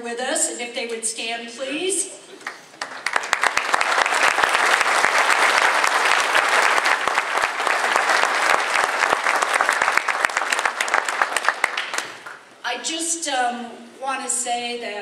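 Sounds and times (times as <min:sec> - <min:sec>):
audience applauding: 0:02.4 - 0:12.5.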